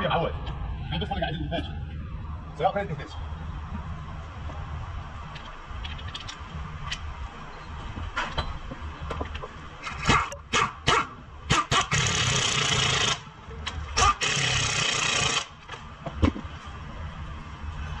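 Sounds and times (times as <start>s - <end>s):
pneumatic impact wrench hammering: 9.8s - 13.2s, 14.0s - 15.6s.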